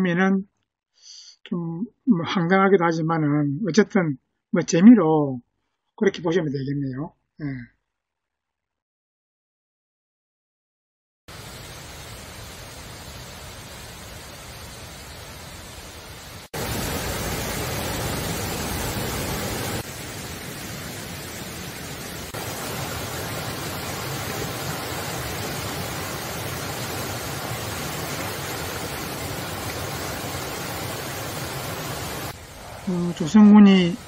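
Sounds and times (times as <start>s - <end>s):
stream rushing over rocks: 11.3s - 33.4s.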